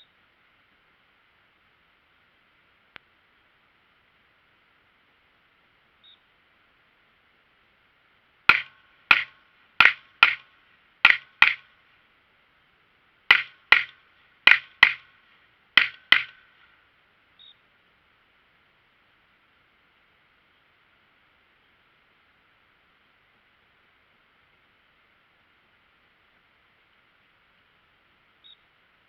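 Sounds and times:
pistol shots: 0:08.5 - 0:10.5.

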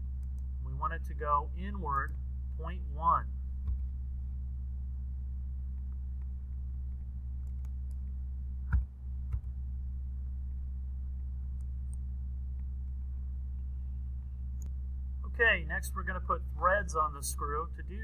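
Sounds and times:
low electrical hum: 0:00.0 - 0:18.0
mouse clicks: 0:05.8 - 0:09.5.

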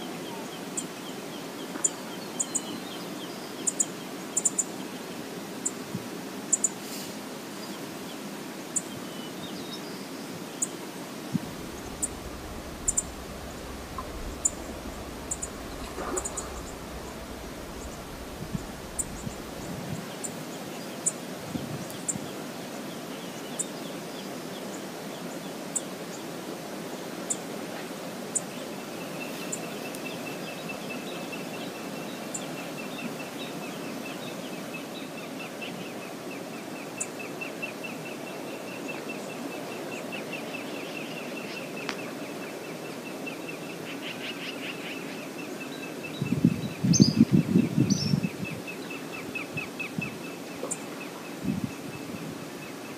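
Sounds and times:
river flowing over riffles: 0:10.0 - 0:32.5
low rumbling thumps: 0:11.3 - 0:20.1
bird trilling: 0:11.6 - 0:19.7.

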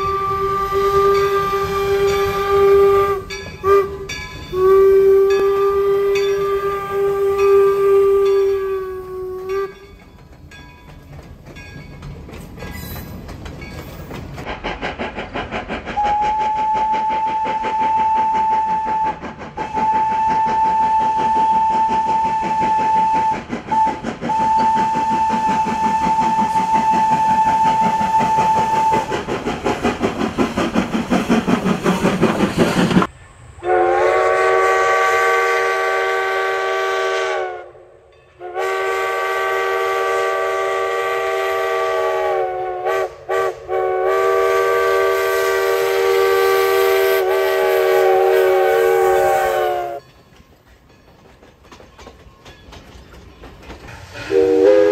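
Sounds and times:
steam locomotive whistle: 0:00.0 - 0:10.1, 0:15.8 - 0:29.7, 0:32.8 - 0:50.1, 0:54.1 - 0:54.9
chime steam whistle: 0:00.0 - 0:10.6, 0:15.9 - 0:29.4, 0:32.5 - 0:50.4, 0:53.8 - 0:54.9
steam exhaust chuffing: 0:00.0 - 0:37.8, 0:38.5 - 0:54.9.

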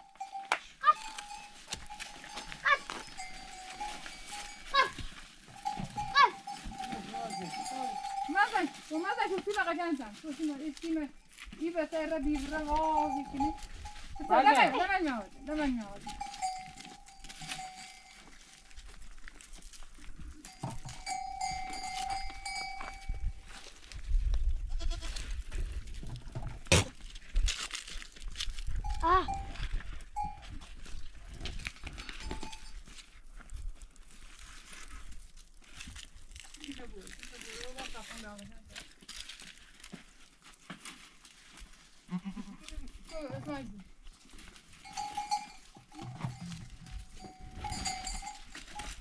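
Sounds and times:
goats and sheep bleating: 0:00.0 - 0:09.5, 0:12.4 - 0:18.6, 0:24.7 - 0:25.3, 0:42.0 - 0:43.5
animals bleating: 0:42.1 - 0:42.8.

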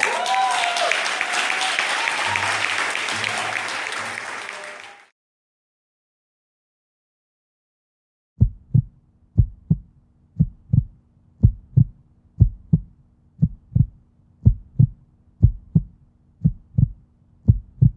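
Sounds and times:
faint steady hum: 0:08.4 - 0:17.9
heartbeat thumps: 0:08.4 - 0:17.9.

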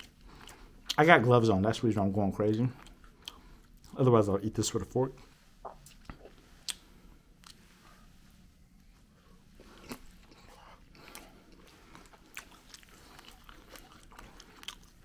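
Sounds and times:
chewing fries: 0:00.0 - 0:01.4, 0:02.3 - 0:04.2, 0:05.6 - 0:08.0, 0:09.4 - 0:15.0
wet mouth clicks: 0:05.6 - 0:06.8.

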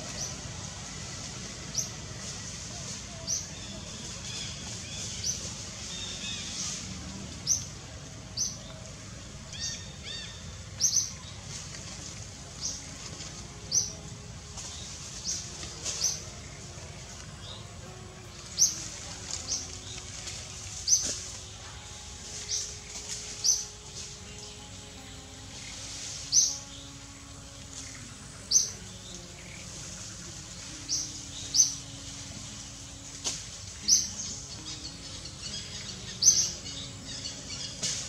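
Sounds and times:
steady background hiss: 0:00.0 - 0:38.0.

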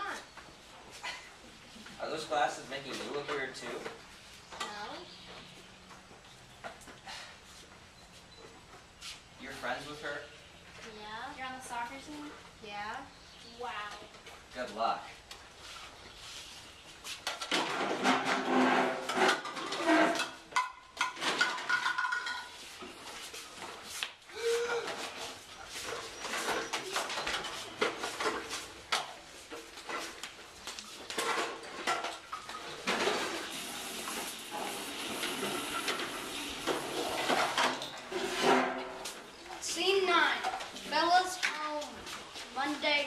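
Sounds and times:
dishes and cutlery clattering: 0:17.5 - 0:22.6.

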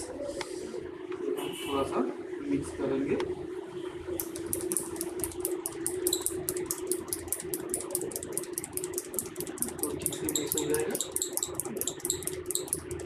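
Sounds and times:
micropipette clicking: 0:04.2 - 0:13.0.

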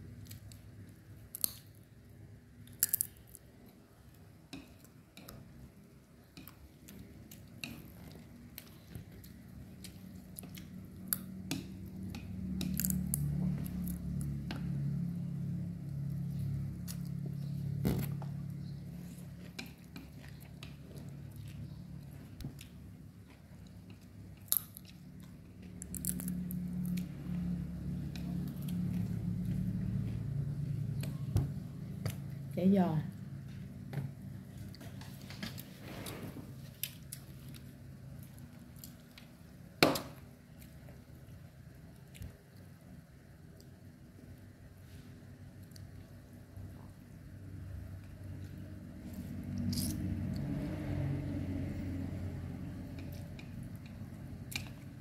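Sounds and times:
low steady hum: 0:00.0 - 0:55.0
faint chewing: 0:02.6 - 0:15.1, 0:15.8 - 0:32.5, 0:52.7 - 0:55.0
crisp bites: 0:02.7 - 0:03.4
chewing: 0:16.4 - 0:31.2.

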